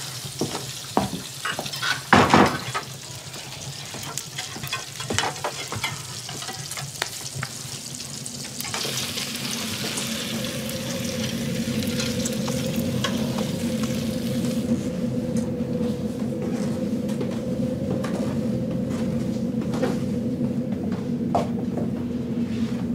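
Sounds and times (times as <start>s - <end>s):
patties sizzling in a frying pan: 0.0s - 14.5s
low steady hum: 7.8s - 22.9s.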